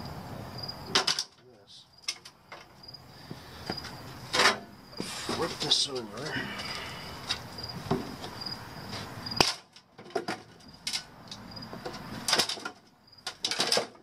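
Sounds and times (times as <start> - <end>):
crickets chirping: 0.0 - 14.0
clicks and knocks of metal panel: 0.9 - 1.4, 4.3 - 4.7, 9.4 - 14.0.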